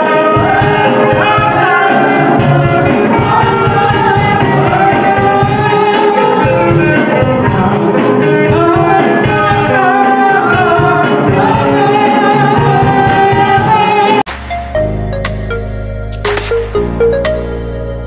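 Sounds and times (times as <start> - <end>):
woman singing gospel song: 0.0 - 14.2
instruments with steady beat: 0.0 - 18.0.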